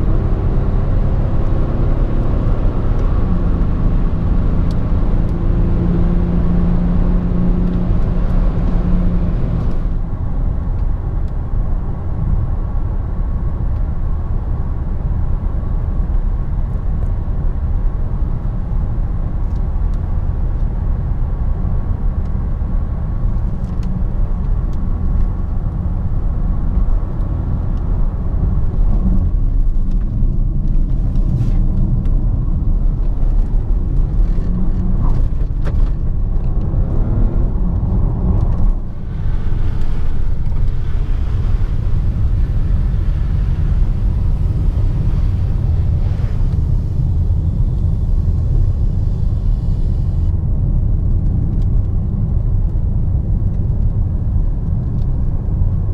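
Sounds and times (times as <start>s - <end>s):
low engine hum: 0.0s - 55.9s
road rumble: 0.0s - 55.9s
wind hiss: 38.9s - 50.3s.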